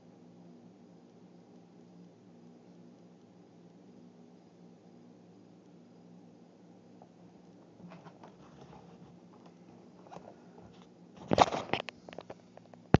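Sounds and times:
low steady hum: 0.0s - 13.0s
crackling scrape on microphone: 7.7s - 13.0s
camera handling rustling: 7.8s - 12.4s.

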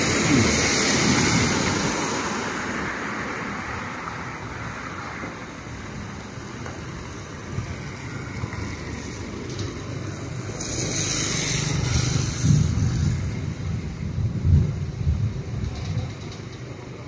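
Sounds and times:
tyres hissing on wet road: 0.0s - 14.1s.

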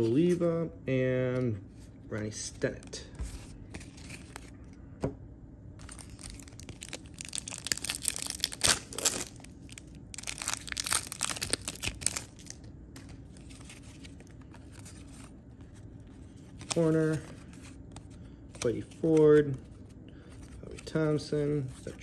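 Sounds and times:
wrapper tearing and crinkling: 5.8s - 12.7s.

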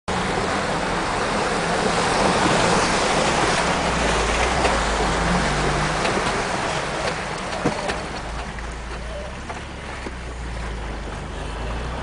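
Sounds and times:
road and rattle noise: 0.1s - 12.0s.

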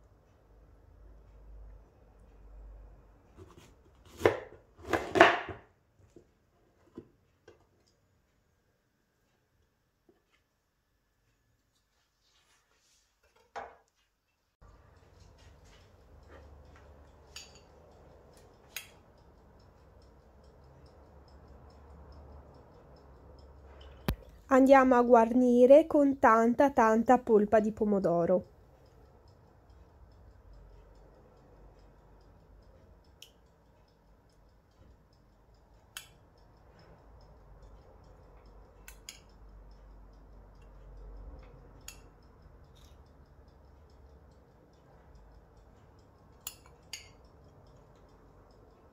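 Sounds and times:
faint regular ticking: 0.0s - 3.4s, 14.6s - 48.9s
steady low hum: 14.6s - 48.9s
metal spoon clinking on dishware: 17.1s - 18.0s, 46.4s - 48.0s.

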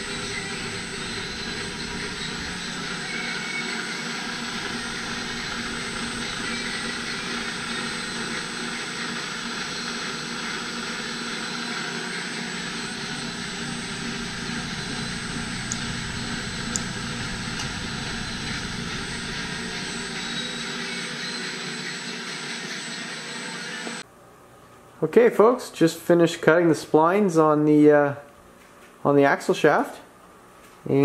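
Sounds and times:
milling machine whirring: 0.0s - 24.0s.

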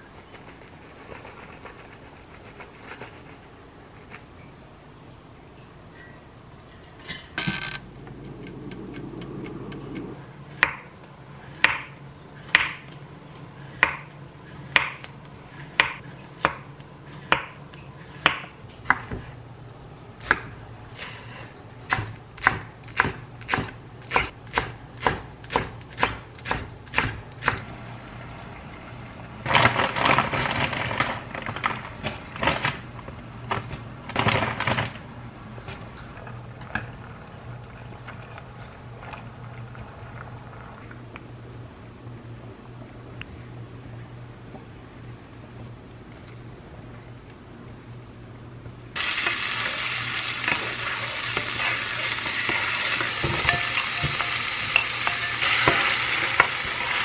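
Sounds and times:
knife chopping on wooden board: 11.6s - 12.8s.

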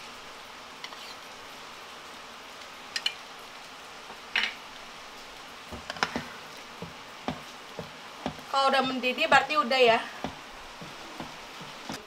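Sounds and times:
sauce sizzling in a wok: 0.0s - 12.0s
metal spoon clinking on pan: 2.9s - 3.2s.

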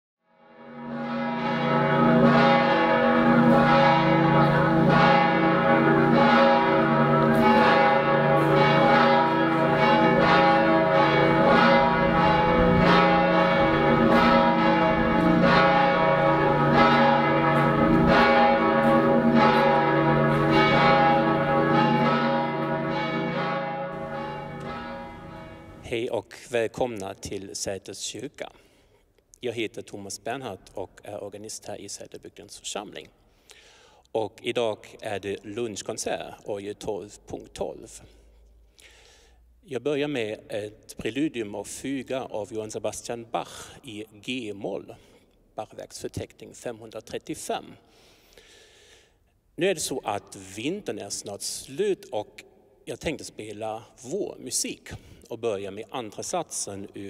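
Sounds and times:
church bells ringing: 0.4s - 26.0s.

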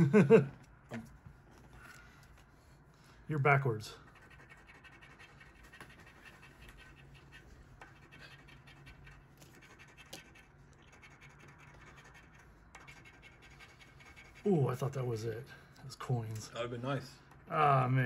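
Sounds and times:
scratching lottery ticket: 3.5s - 15.3s.

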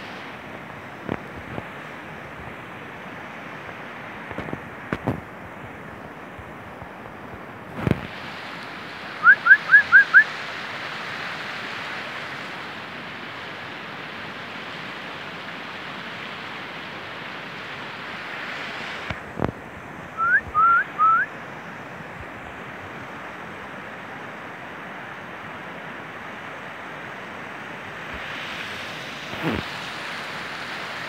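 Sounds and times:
wind blowing across microphone: 0.0s - 31.0s
short rising whistles: 9.2s - 10.3s, 20.2s - 21.3s.

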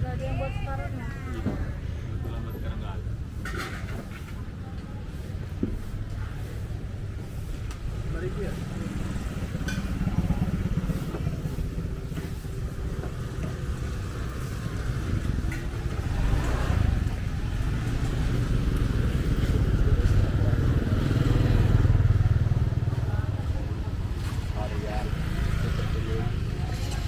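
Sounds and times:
motorbike engine passing: 7.9s - 27.0s.

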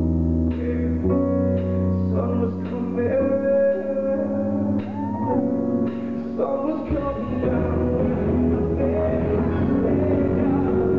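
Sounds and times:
person singing: 0.5s - 10.9s.

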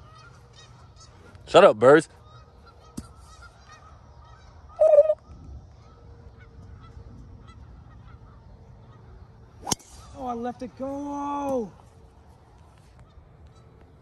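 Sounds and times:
faint high bird chirping: 2.0s - 10.4s
harsh bird call: 2.3s - 10.3s.

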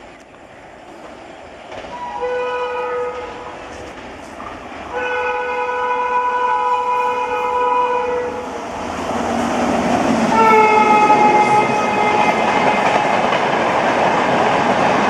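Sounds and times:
approaching train noise: 0.0s - 15.0s
locomotive horn blasts: 2.0s - 3.4s, 4.9s - 8.4s, 10.3s - 12.9s.

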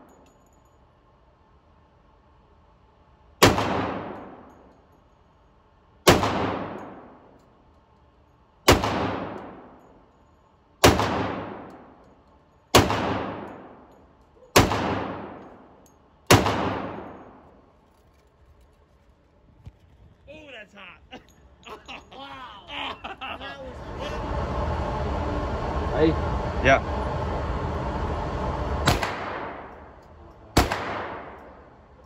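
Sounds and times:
echoing pistol shots: 3.4s - 4.4s, 6.0s - 7.1s, 8.7s - 9.7s, 10.8s - 11.7s, 12.7s - 13.7s, 14.6s - 15.4s, 16.3s - 17.4s, 30.6s - 31.5s.

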